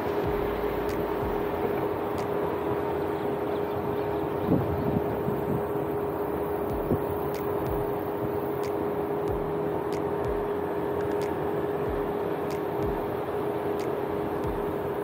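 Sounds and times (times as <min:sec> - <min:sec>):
low thumps: 0:00.0 - 0:01.9, 0:06.7 - 0:08.0
vehicle engine hum with whine: 0:00.0 - 0:15.0.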